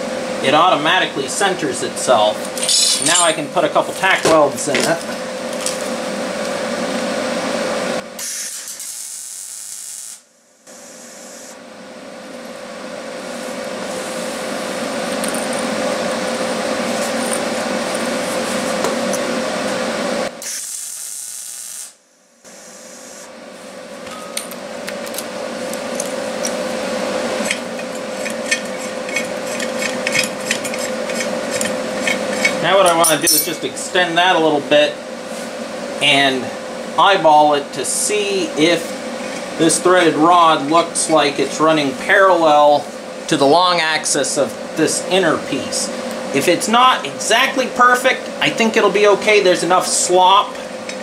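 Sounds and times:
constant hum: 0:00.0 - 0:08.2, 0:11.5 - 0:20.4, 0:22.2 - 0:51.0
welding arc hissing: 0:02.5 - 0:03.5, 0:08.2 - 0:11.6, 0:20.4 - 0:22.0.

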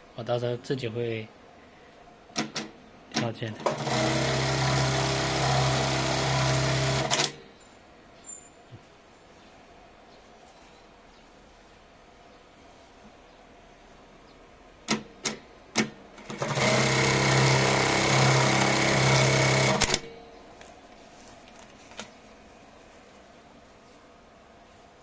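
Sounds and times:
sewing machine clicks: 0:02.4 - 0:07.4, 0:14.9 - 0:20.1
sewing machine running: 0:03.6 - 0:07.4, 0:16.2 - 0:20.1.

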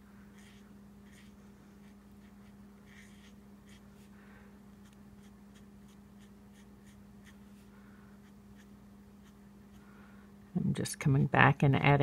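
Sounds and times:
steady low hum: 0:00.0 - 0:12.0
marker tip scratching on cardstock: 0:00.4 - 0:03.8.

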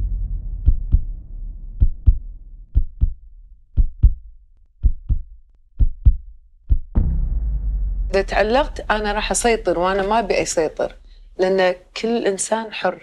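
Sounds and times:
low hum: 0:00.0 - 0:05.3, 0:07.0 - 0:12.3
heartbeat thumps: 0:00.0 - 0:12.0.

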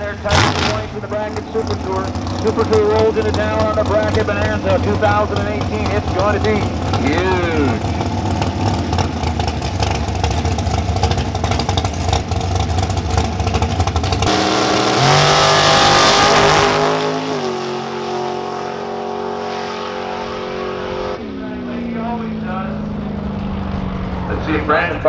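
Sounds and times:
dragster engine: 0:00.0 - 0:25.0.

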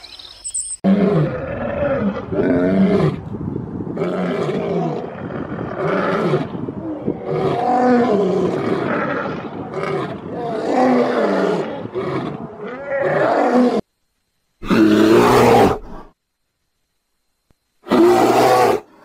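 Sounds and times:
lions growling: 0:03.9 - 0:13.8.

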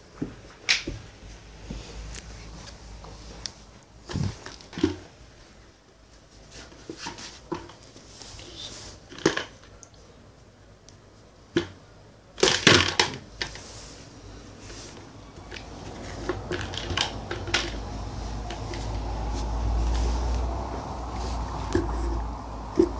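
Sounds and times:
plastic toys clattering on carpet: 0:12.4 - 0:13.7, 0:15.5 - 0:17.9.

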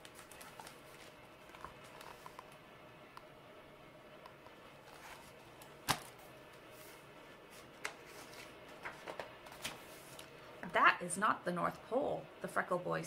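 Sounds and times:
book pages turning: 0:00.0 - 0:02.6, 0:04.8 - 0:10.4.

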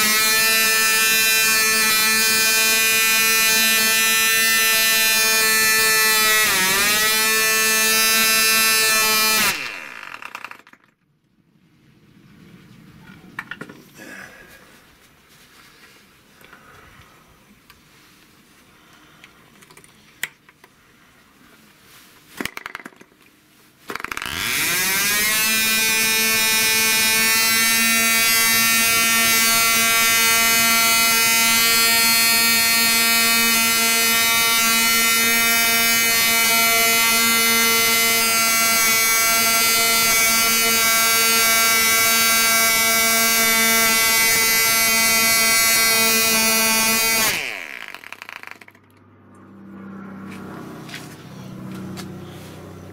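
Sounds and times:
model aircraft engine buzzing: 0:00.0 - 0:10.6, 0:23.9 - 0:52.9.

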